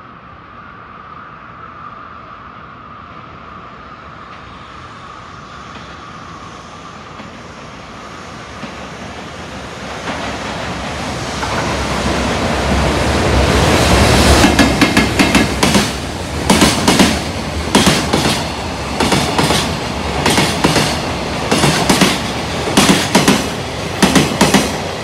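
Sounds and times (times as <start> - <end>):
freight train rumbling: 0.0 - 25.0
train wheels clacking over rail joints: 14.3 - 24.9.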